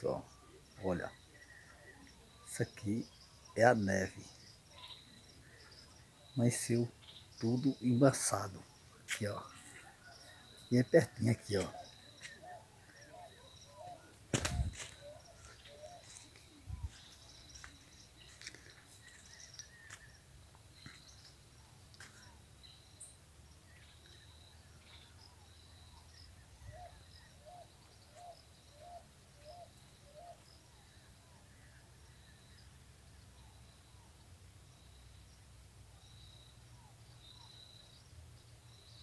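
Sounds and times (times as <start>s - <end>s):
short low bird calls: 0.0s - 20.2s
birds calling: 0.0s - 30.6s
loud thump: 14.3s - 14.8s.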